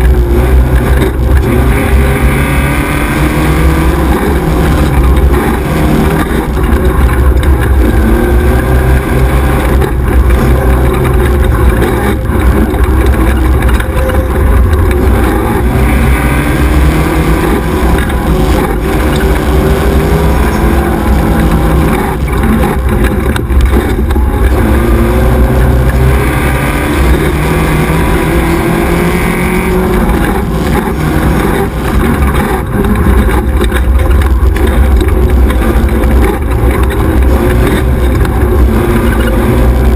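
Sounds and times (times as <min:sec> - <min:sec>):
buggy engine revving: 0:00.0 - 0:39.9
bumps from rough track: 0:00.0 - 0:39.9.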